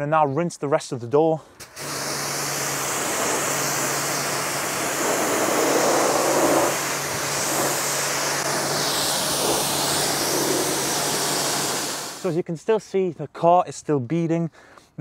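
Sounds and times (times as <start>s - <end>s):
pressure washer spraying water: 1.6s - 12.4s.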